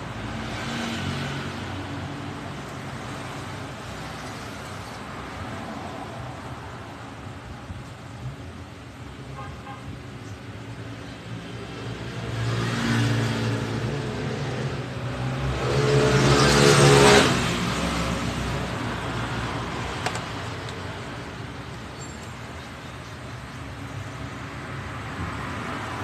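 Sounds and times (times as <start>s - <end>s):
vehicle engine passing by: 12.2s - 19.9s.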